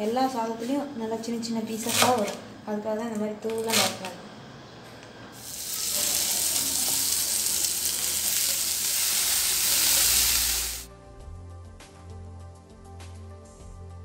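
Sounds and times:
leaves sizzling in hot oil: 5.4s - 10.9s.

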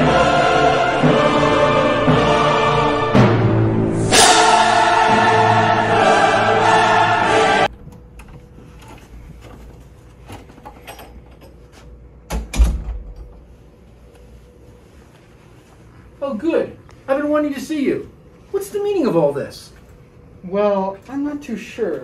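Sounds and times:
choir singing: 0.0s - 7.7s
door shutting with low thud: 12.3s - 13.4s.

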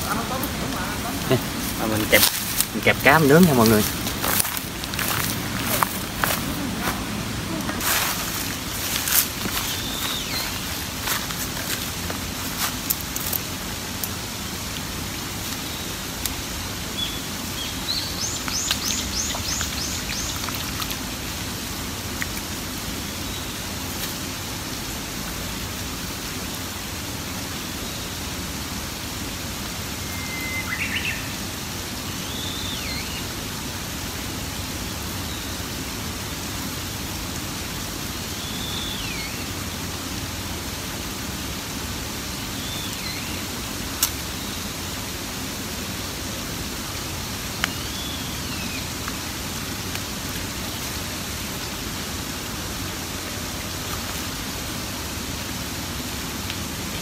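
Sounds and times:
birds chirping: 0.0s - 7.8s, 8.6s - 11.3s, 15.6s - 20.8s, 30.0s - 31.4s, 38.2s - 39.6s, 47.6s - 49.0s
light rain hiss: 0.0s - 57.0s.

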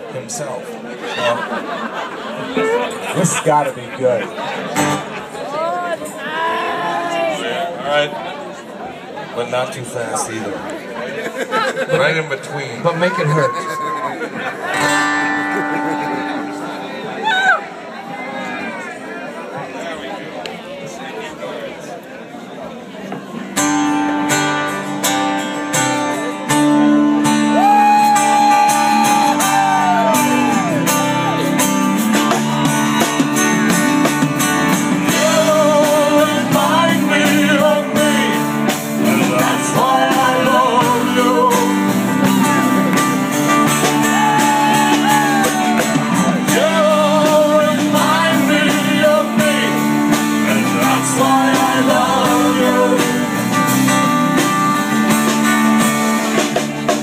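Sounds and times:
sliding lead guitar line: 13.2s - 18.0s, 23.6s - 57.0s
blues-rock band playing: 14.4s - 17.2s, 23.5s - 57.0s.

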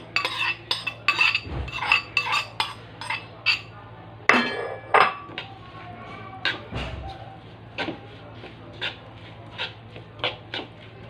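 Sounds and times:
ringing clink of kitchenware: 4.3s - 5.3s.

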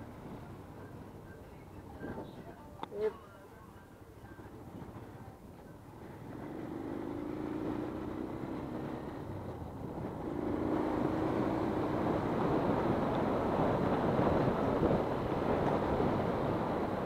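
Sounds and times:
motorcycle engine accelerating: 6.0s - 17.0s
wind on microphone: 9.3s - 17.0s.

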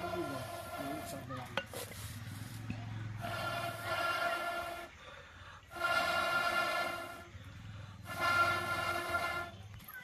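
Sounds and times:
breath blown through metal pipe: 3.1s - 9.6s.

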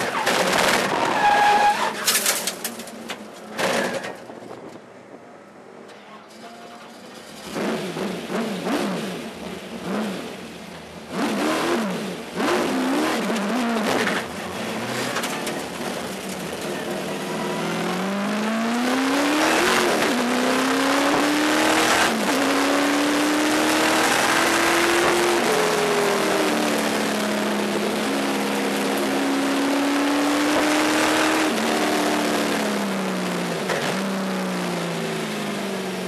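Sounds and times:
race car engine revving: 11.1s - 35.9s.

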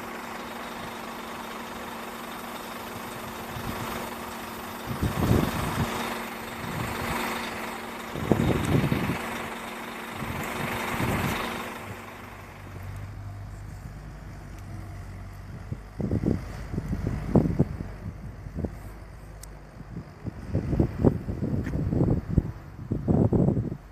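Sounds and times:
diesel engine idling: 0.0s - 23.9s
low rumbles on microphone: 12.6s - 23.9s.

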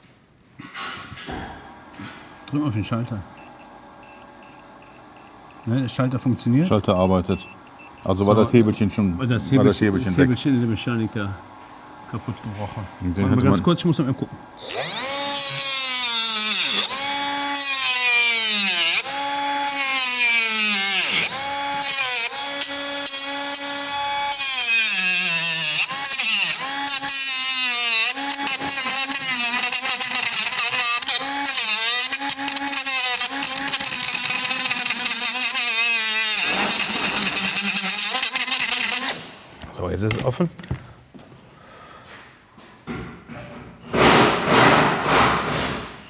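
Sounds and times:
power saw cutting plastic: 12.1s - 39.4s.

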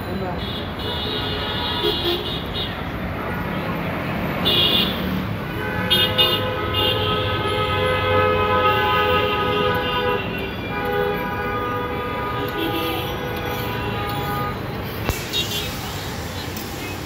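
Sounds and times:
traffic hum: 0.0s - 17.0s
vehicle horn sounding: 0.4s - 2.8s, 4.4s - 15.8s.

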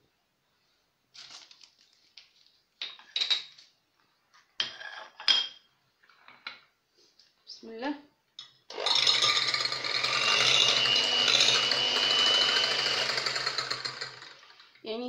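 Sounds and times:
dishes clinking on stone countertop: 2.8s - 3.6s, 4.6s - 6.7s.

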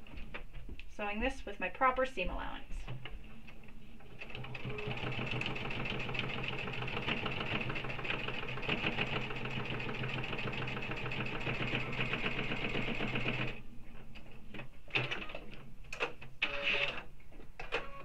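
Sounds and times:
sewing machine stitching: 4.1s - 13.6s.

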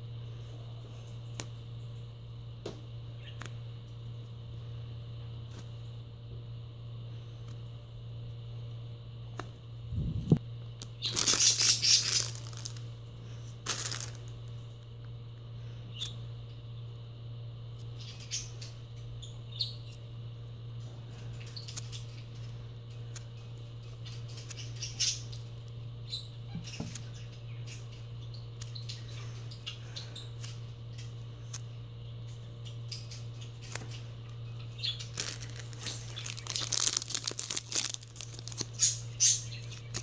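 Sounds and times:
steady low hum: 0.0s - 40.0s
foam toys rustling and crinkling: 11.0s - 14.6s, 35.0s - 40.0s.

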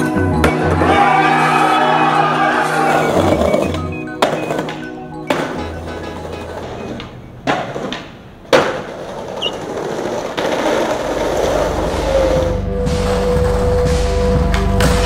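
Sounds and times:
skateboard wheels rolling over paving: 0.4s - 13.9s
skateboard clacking on ground: 3.2s - 12.4s.

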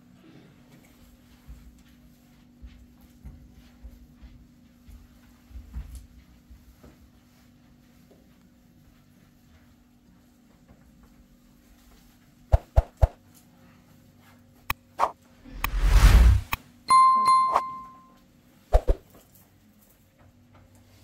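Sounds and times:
loud whoosh: 15.0s - 16.6s
bell-like ding: 16.9s - 18.2s.

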